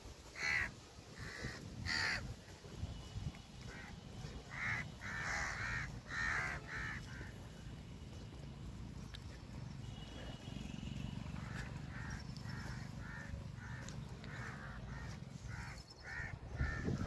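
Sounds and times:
crow cawing: 0:00.4 - 0:02.2, 0:04.5 - 0:07.3, 0:11.4 - 0:17.0.

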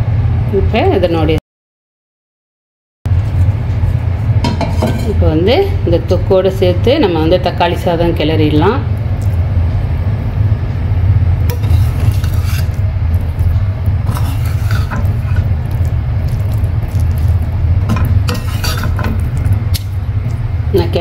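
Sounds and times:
steady low rumble: 0:03.1 - 0:21.0
spatula scraping steel pan: 0:04.5 - 0:05.2, 0:11.5 - 0:15.6, 0:17.9 - 0:19.2.

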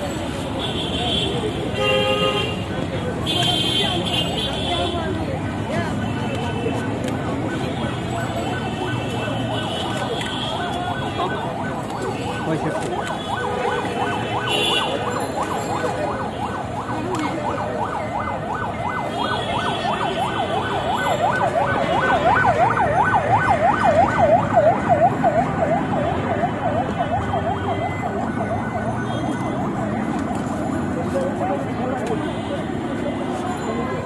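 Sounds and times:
street noise: 0:00.0 - 0:34.0
emergency vehicle siren yelping: 0:05.2 - 0:31.2.

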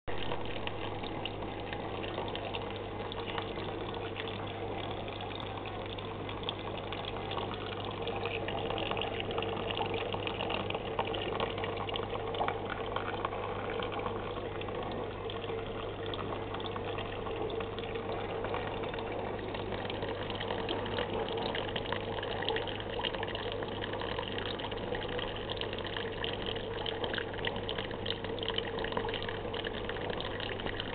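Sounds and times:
water bubbling: 0:00.1 - 0:30.9.

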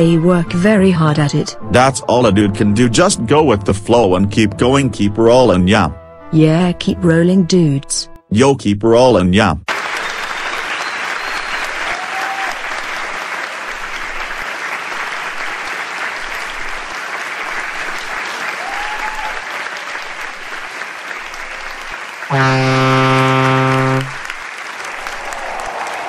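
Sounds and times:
crowd applause: 0:09.7 - 0:26.0
buzzy held low note: 0:22.3 - 0:24.2.

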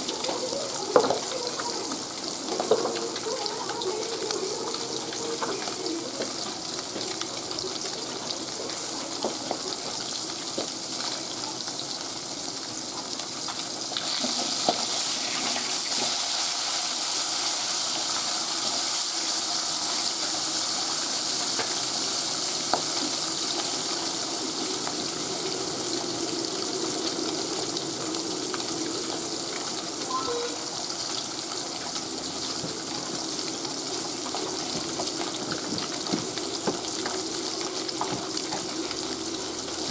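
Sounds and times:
fish sizzling in hot oil: 0:00.0 - 0:39.9.

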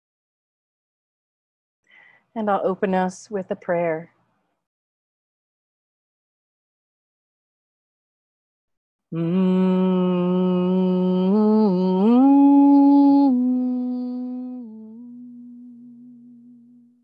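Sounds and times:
woman humming: 0:09.1 - 0:17.0.

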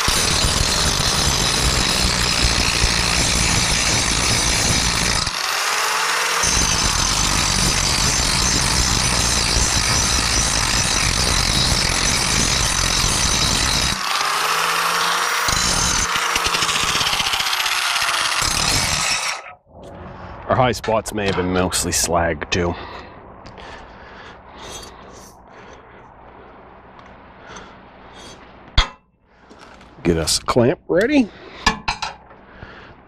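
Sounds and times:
angle grinder grinding steel: 0:00.0 - 0:19.6, 0:24.6 - 0:25.3.

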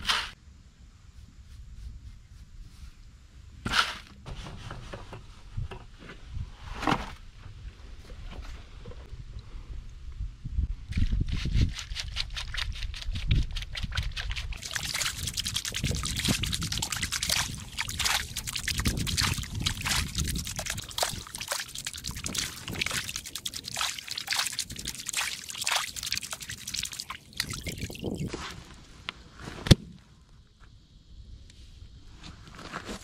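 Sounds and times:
muddy water sloshing in a tub: 0:11.7 - 0:28.3.

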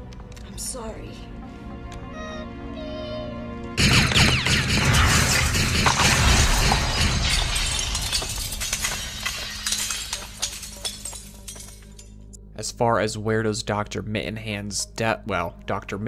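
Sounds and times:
loud blast: 0:03.8 - 0:08.2
shattering crackling debris: 0:04.1 - 0:12.2.

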